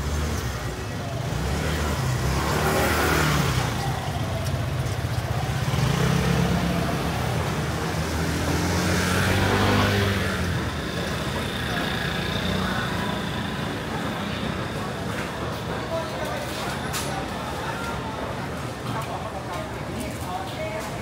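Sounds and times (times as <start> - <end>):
vehicle engine hum: 0.0 - 17.3.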